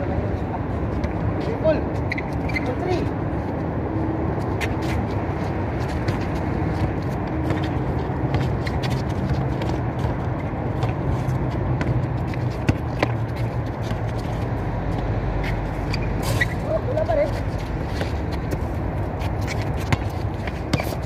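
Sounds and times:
basketball bouncing on concrete: 5.8s - 16.6s, 17.2s - 21.0s.

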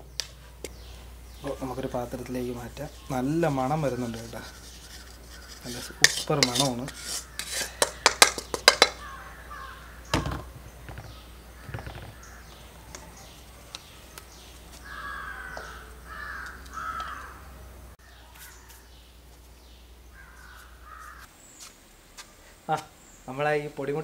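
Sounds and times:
crows cawing: 3.0s - 6.2s, 6.9s - 13.1s, 14.7s - 19.0s, 20.1s - 21.3s.

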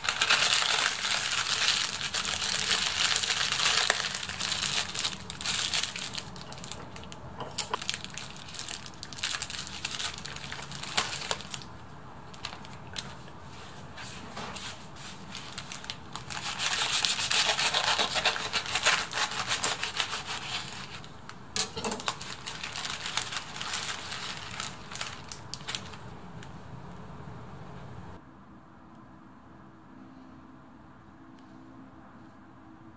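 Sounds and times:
parchment paper crinkling: 0.0s - 13.9s, 14.5s - 26.5s
knife sawing through toasted sandwich: 16.4s - 20.9s.

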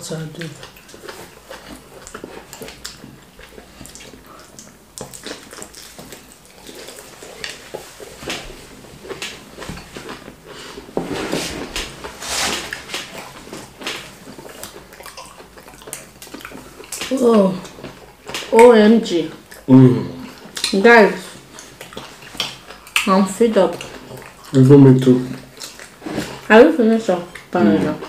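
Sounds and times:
wet squishing eating sounds: 0.0s - 28.0s.

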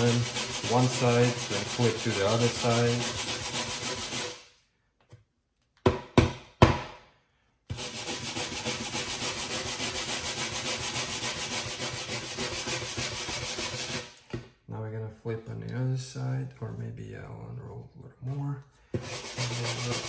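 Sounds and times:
brush scrubbing webbing: 0.0s - 4.4s, 7.8s - 14.0s, 19.0s - 20.0s.

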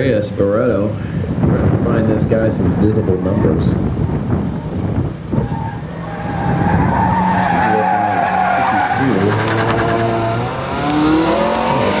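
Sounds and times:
tires squealing: 5.2s - 12.0s
car engine revving: 5.3s - 12.0s.

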